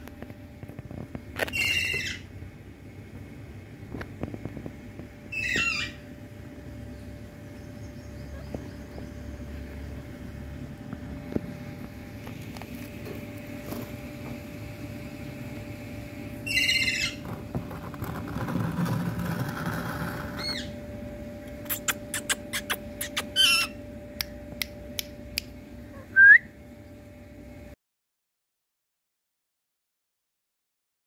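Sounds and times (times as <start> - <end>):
parakeets screeching: 1.4 - 2.3, 5.3 - 6.0, 16.4 - 17.3, 20.3 - 20.8, 21.7 - 23.8
short rising whistle: 26.1 - 26.5.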